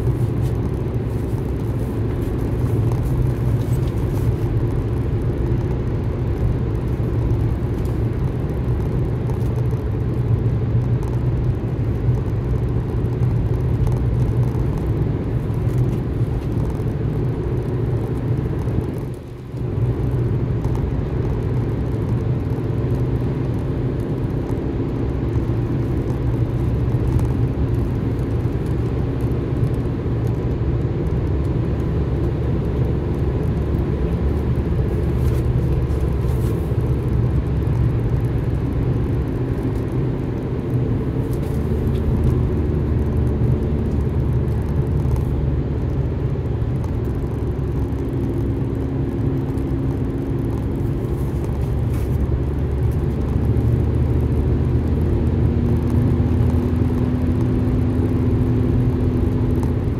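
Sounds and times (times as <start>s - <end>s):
car engine and tyre rumble: 0.0s - 59.9s
faint engine hum: 0.0s - 59.9s.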